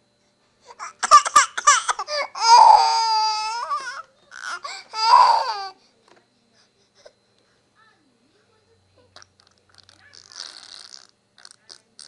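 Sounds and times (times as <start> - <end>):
baby crying and wailing: 0.8 - 5.8.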